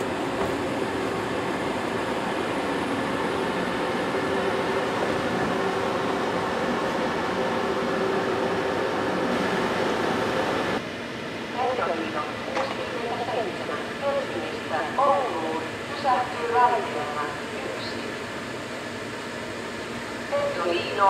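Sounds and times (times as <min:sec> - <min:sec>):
electric train cooling fans humming: 0:00.0 - 0:21.0.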